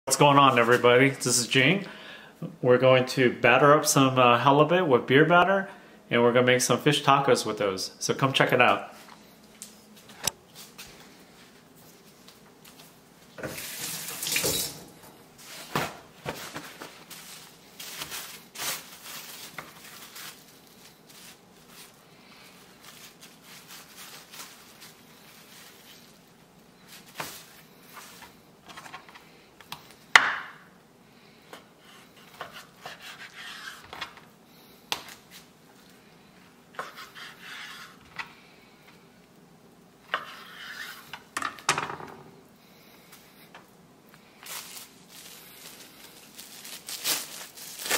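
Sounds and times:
plastic wrap crinkling: 0:15.4 - 0:29.0, 0:44.1 - 0:47.9.

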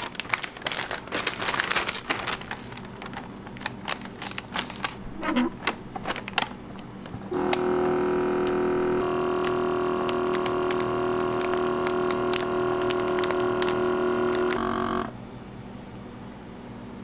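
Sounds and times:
plastic bag crackling: 0:00.0 - 0:06.6, 0:09.0 - 0:14.6
vacuum sealer pump humming: 0:06.7 - 0:15.2.

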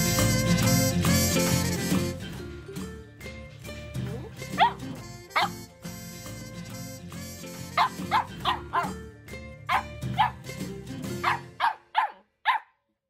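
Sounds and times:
background music: 0:00.0 - 0:12.6
puppy yapping: 0:04.2 - 0:05.6, 0:07.8 - 0:09.0, 0:09.7 - 0:10.4, 0:11.2 - 0:12.7.

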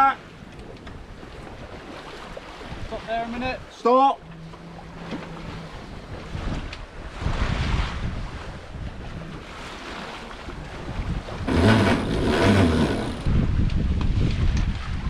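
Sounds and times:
sea noise: 0:00.0 - 0:15.0
wind buffeting microphone: 0:00.0 - 0:15.0.

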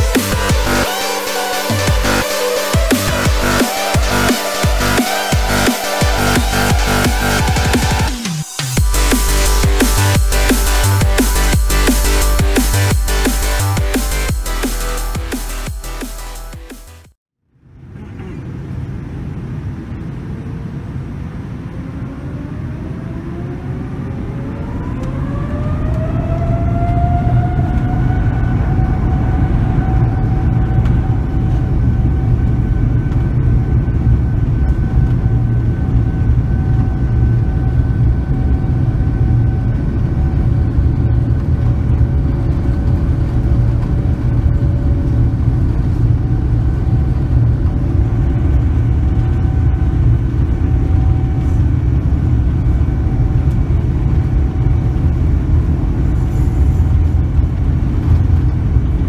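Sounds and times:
jet engine whine: 0:00.0 - 0:15.7, 0:17.5 - 0:59.0
deep rumble of takeoff roll: 0:17.5 - 0:59.0.

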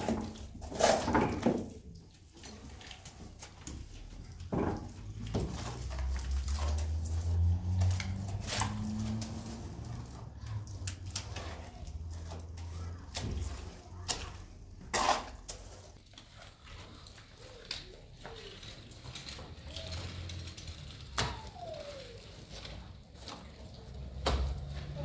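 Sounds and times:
trowel scraping plaster: 0:00.0 - 0:21.1.

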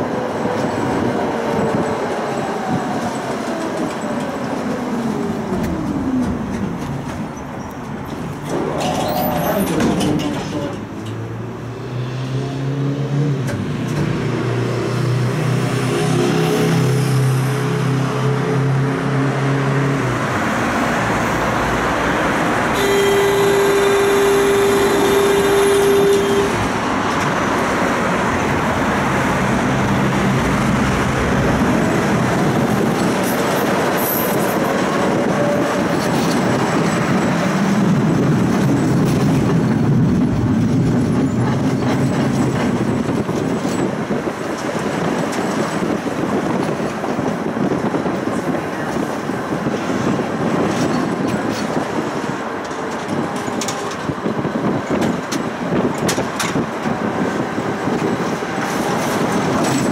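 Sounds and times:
tram rumbling on rails: 0:00.0 - 0:59.9
buzzer tone: 0:22.8 - 0:26.6.

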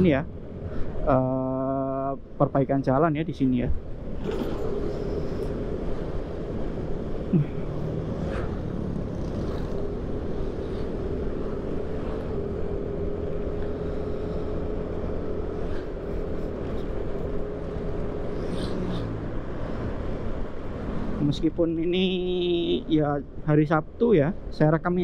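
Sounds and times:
road and wind noise: 0:00.0 - 0:25.0
scooter engine hum: 0:03.8 - 0:21.2.

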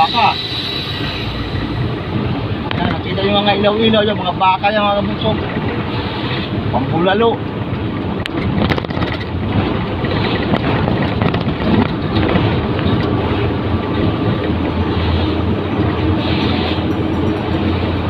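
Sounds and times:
truck engine drone: 0:00.0 - 0:04.5, 0:12.0 - 0:18.0
wind and tyre rush: 0:00.0 - 0:18.0.

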